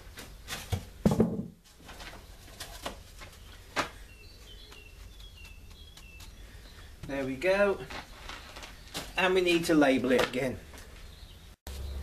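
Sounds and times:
dull knock: 1.0 - 1.6
bird chirping: 2.0 - 12.0.

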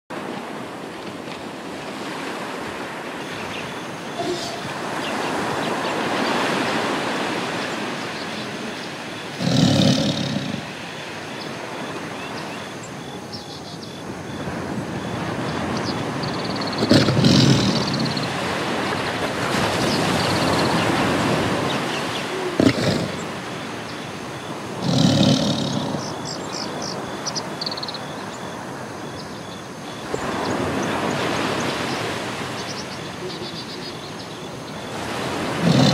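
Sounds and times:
sea surf washing in: 0.2 - 13.0, 14.0 - 27.6, 30.0 - 35.9
big cat roaring: 9.4 - 10.7, 16.8 - 18.3, 22.3 - 23.4, 24.8 - 26.2, 35.5 - 35.9.

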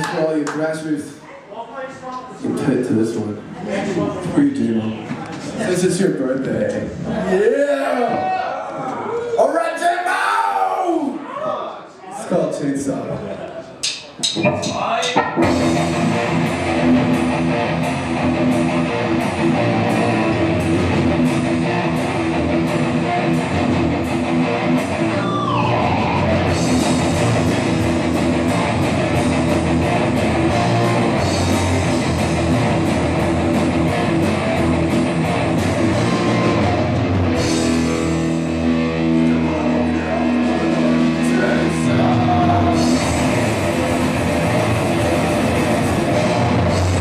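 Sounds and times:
punk rock band playing live: 15.2 - 47.0.

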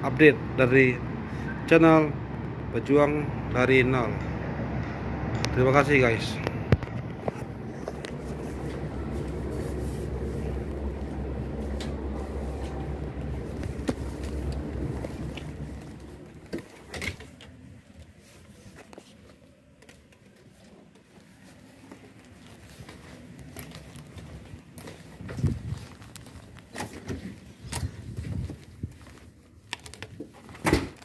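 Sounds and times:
open-air rumble: 0.0 - 31.0.

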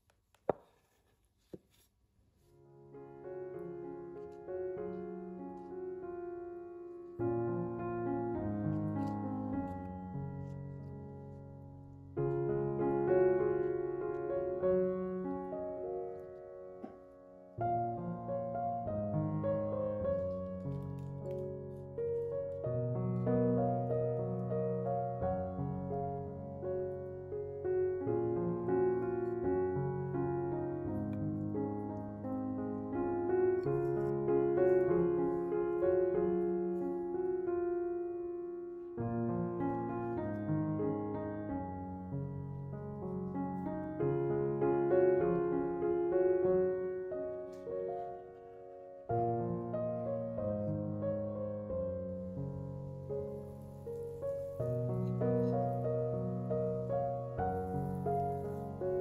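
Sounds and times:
gentle piano music: 2.4 - 59.0.

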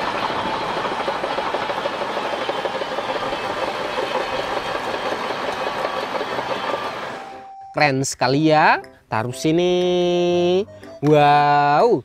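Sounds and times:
steel tracks clattering: 0.0 - 7.5.

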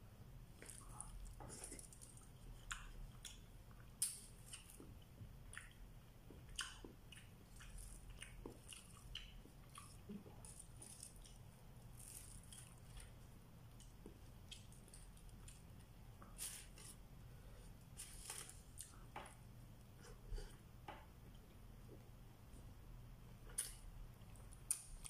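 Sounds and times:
low steady hum: 0.0 - 25.0
soft chewing: 0.4 - 25.0.

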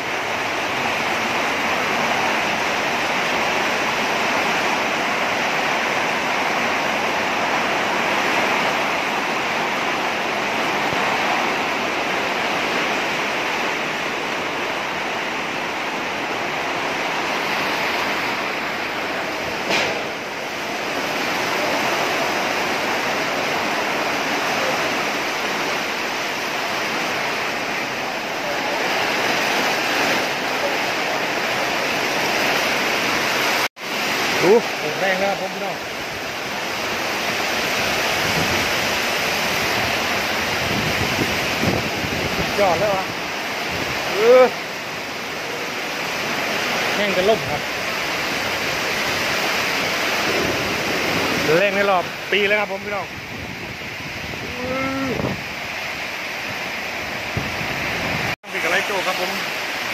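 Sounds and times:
heavy rain in strong wind: 0.0 - 59.9
sharp crack: 19.6 - 20.3.

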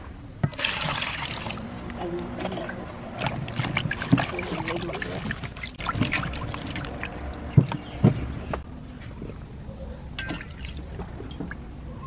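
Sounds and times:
hands splashing water in a bowl: 0.5 - 1.6, 3.2 - 7.9.

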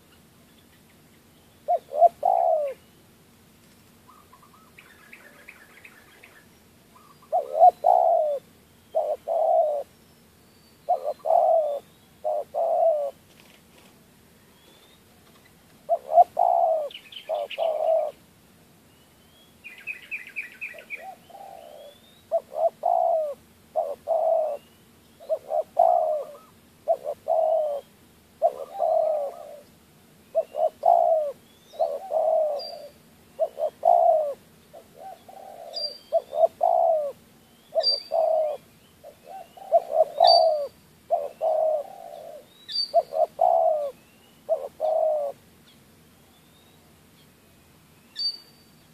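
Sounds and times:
small birds chirping: 0.0 - 48.9
dove cooing: 1.6 - 2.9, 4.1 - 9.9, 10.8 - 13.4, 15.7 - 18.2, 19.7 - 45.5.

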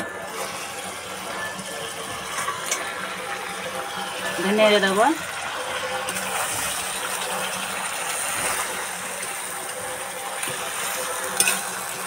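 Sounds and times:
chicken sizzling in oil: 0.0 - 12.0
metal spatula clink: 11.4 - 11.8.

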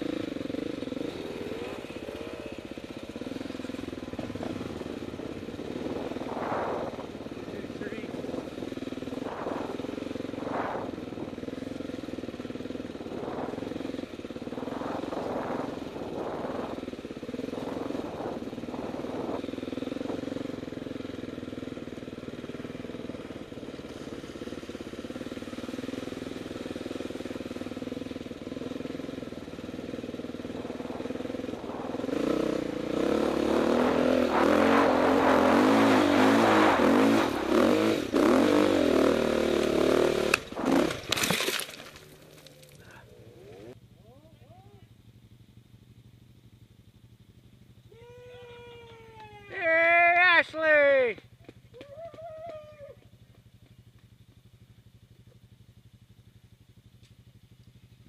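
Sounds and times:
off-road vehicle engine revving: 0.0 - 43.8.

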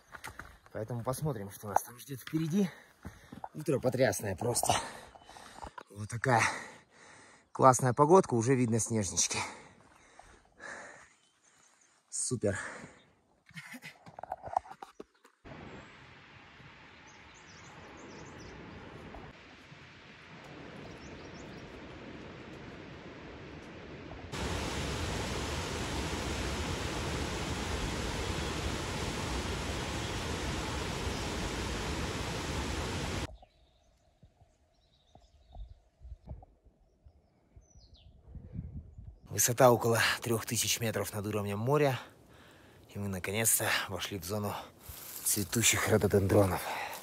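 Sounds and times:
footsteps on a trail: 0.0 - 5.9, 44.8 - 45.6, 46.3 - 47.0
faint birdsong: 0.0 - 13.9, 16.7 - 19.3, 20.5 - 22.4, 28.0 - 47.0
loud rushing noise: 24.3 - 33.3.

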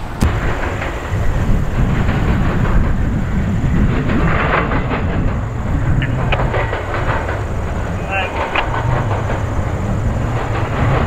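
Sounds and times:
freight train rumbling: 0.0 - 11.0
wheel and rail hiss: 0.0 - 11.0.

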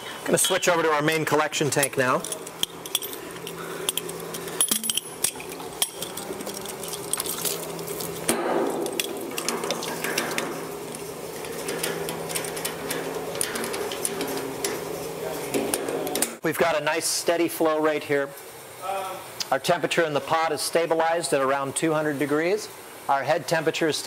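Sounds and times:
steady hum: 0.0 - 23.5
metallic clicks and clinks: 0.4 - 8.1.

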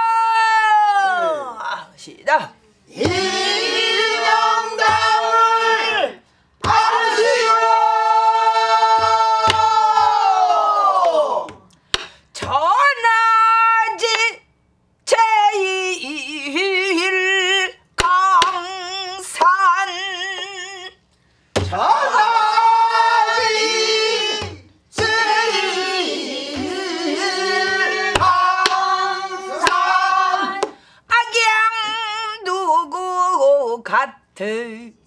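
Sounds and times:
woman singing with heavy vibrato: 15.1 - 21.0, 21.7 - 34.9.

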